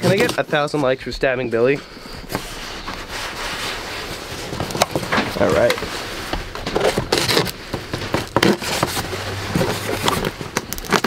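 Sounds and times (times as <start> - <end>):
packing tape slit and peeled: 6.7 - 7.6, 8.2 - 11.0.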